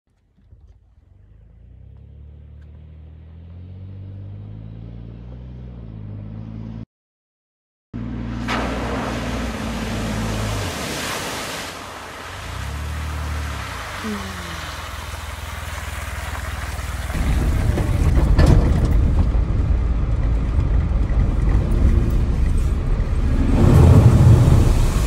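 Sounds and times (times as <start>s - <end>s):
splash of water and mud: 8.2s - 19.6s, 22.6s - 25.0s.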